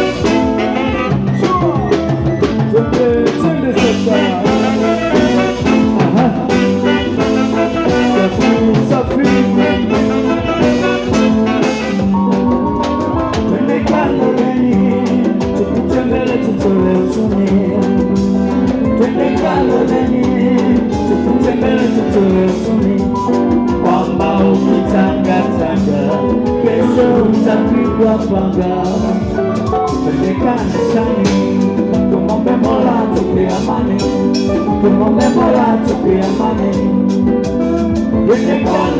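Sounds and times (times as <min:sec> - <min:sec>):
man singing: 0:00.0 - 0:12.3, 0:13.0 - 0:38.9
electric guitar: 0:00.0 - 0:38.9
keyboard: 0:00.0 - 0:38.9
saxophones: 0:00.0 - 0:38.9.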